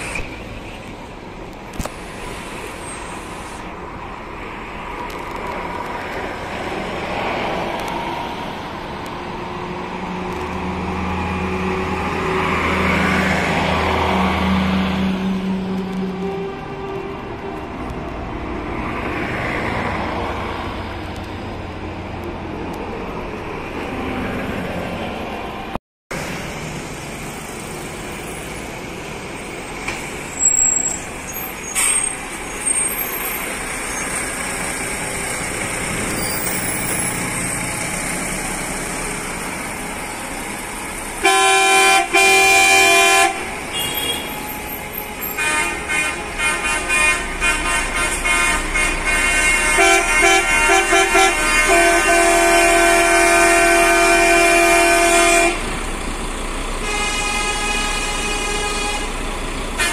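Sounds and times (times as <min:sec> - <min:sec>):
coach engines and road noise: 0:00.0 - 0:59.9
coach horn blowing: 0:15.2 - 0:17.9, 0:41.2 - 0:44.5, 0:45.2 - 0:55.7, 0:56.8 - 0:59.2
rapid horn toots: 0:41.2 - 0:44.4, 0:45.2 - 0:55.7, 0:56.8 - 0:59.2.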